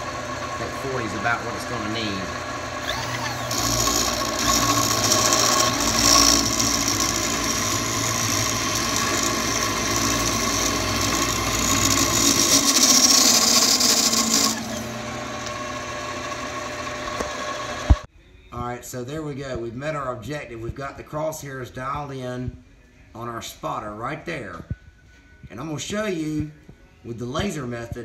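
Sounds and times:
mill motor running: 0.0 - 18.0
milling machine cutting steel: 0.0 - 18.0.

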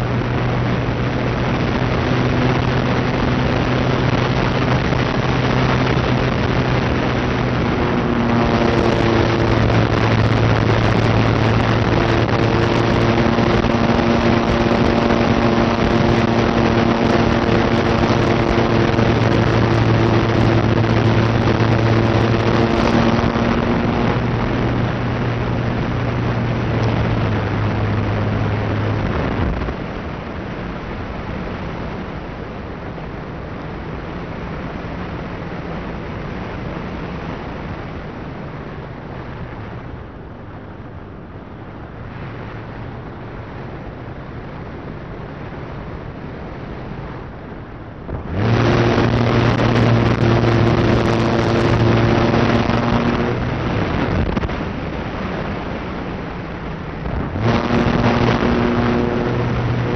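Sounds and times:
electric motor and propeller hum: 0.0 - 29.8, 48.1 - 55.7, 56.6 - 59.9
wind rushing: 0.0 - 30.0, 48.0 - 59.9.

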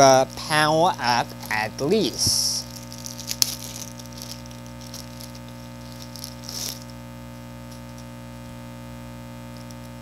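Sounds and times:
steady electrical hum: 0.0 - 10.0
packaging rustling: 1.3 - 7.0.

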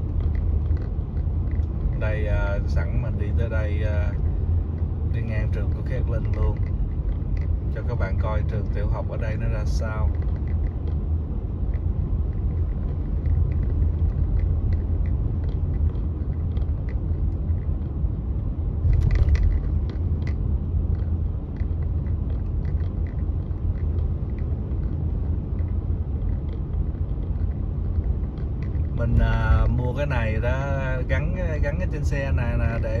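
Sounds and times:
light ticks: 0.0 - 18.1, 18.8 - 33.0
car road noise rumble: 0.0 - 33.0
brief clatter: 18.8 - 21.7.

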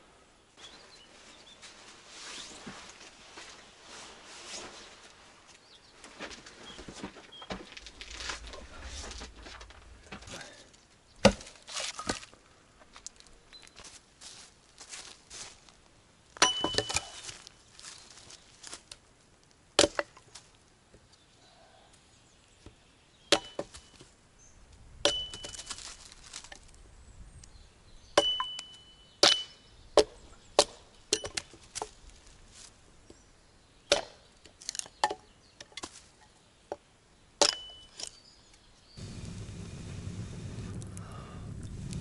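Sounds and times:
axe chopping firewood: 11.2 - 12.3, 16.4 - 17.4, 19.8 - 20.2, 23.3 - 23.8, 25.0 - 25.7, 28.2 - 31.9, 33.9 - 36.0, 37.4 - 38.1.

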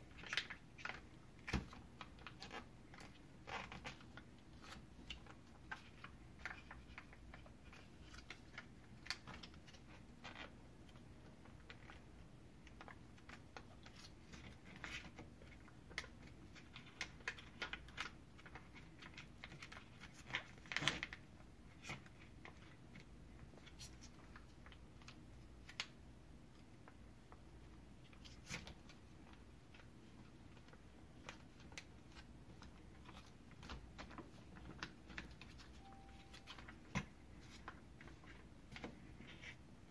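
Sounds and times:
label paper rustling: 0.1 - 26.0, 26.6 - 39.6.

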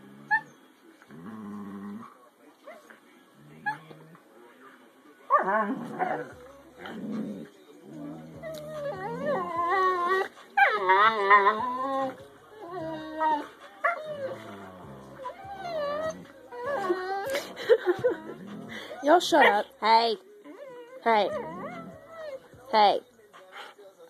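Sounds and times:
dogs growling: 0.0 - 2.2, 3.3 - 4.3, 5.3 - 19.7, 20.4 - 22.5
dogs whining howl-like calls: 8.3 - 17.5.

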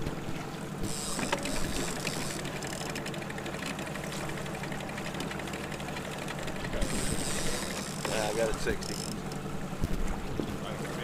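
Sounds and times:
boat engine hum: 0.0 - 11.0
electric motor whirring: 6.8 - 9.2.

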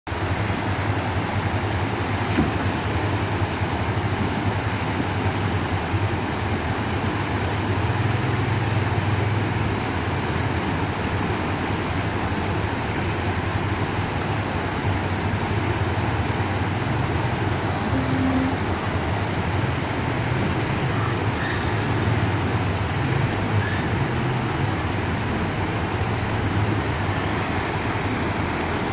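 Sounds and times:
creek water rushing over rocks: 0.1 - 28.9
car engine rumbling: 0.2 - 28.9.

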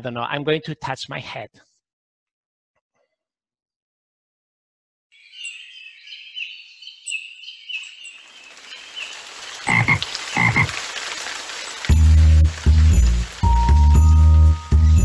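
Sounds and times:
bird chirping: 5.2 - 10.5
rain hissing: 7.8 - 15.0
frog croaking: 9.6 - 10.9.

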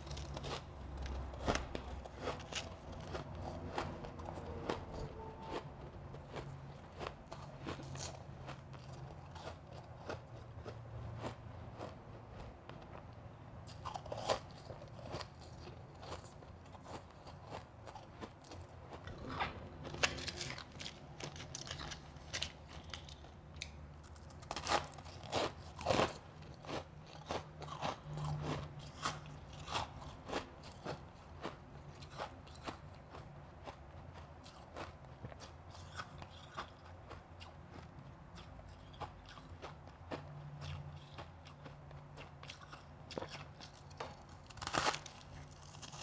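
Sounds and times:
crunching shaved ice: 0.0 - 5.6, 13.7 - 31.0, 42.2 - 46.0.

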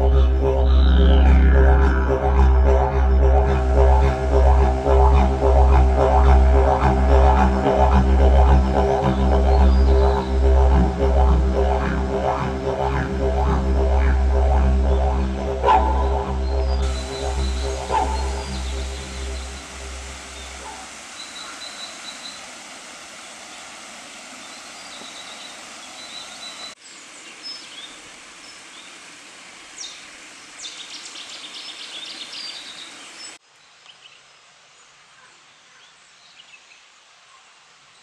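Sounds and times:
music: 0.0 - 20.6
birds chirping: 0.0 - 22.5
stream and waterfall rushing: 1.9 - 33.4.

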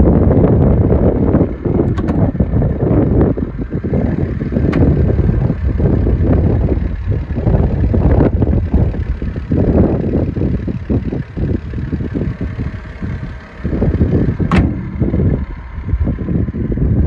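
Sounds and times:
gusting wind buffeting microphone: 0.0 - 17.0.

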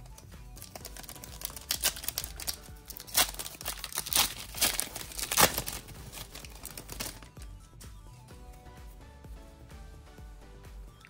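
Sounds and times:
wrapper being torn and crinkled: 0.6 - 7.4.

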